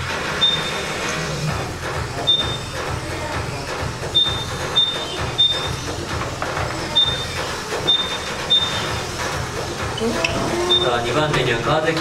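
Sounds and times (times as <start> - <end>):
high electronic beeps: 0.4 - 1.0, 2.2 - 2.8, 4.1 - 6.0, 6.9 - 9.1, 10.0 - 11.1.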